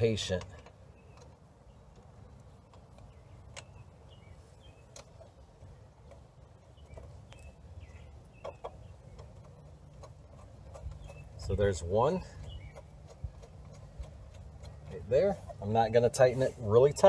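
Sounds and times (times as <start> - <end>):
birds chirping: 0.0 - 17.0
low steady rumble: 0.0 - 17.0
small metallic clicks: 0.1 - 3.8.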